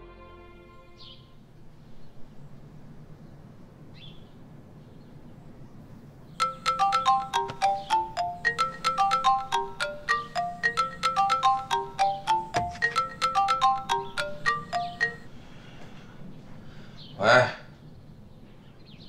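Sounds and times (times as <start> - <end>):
mobile phone ringtone: 6.4 - 15.3.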